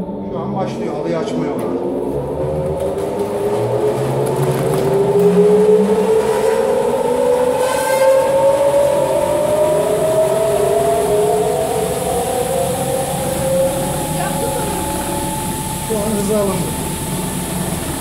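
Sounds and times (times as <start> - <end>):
machine drum spinning up: 1.6 - 18.0.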